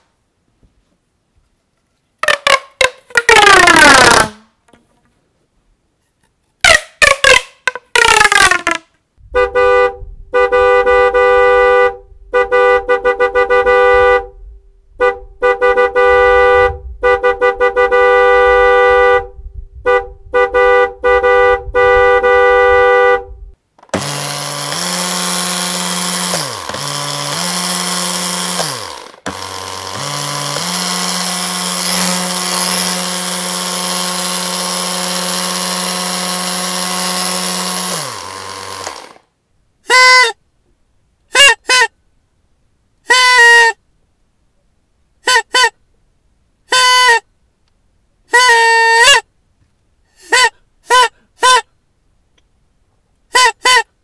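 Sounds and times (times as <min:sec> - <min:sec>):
car horn honking: 0:09.3 - 0:23.6
electric motor whirring: 0:23.9 - 0:39.2.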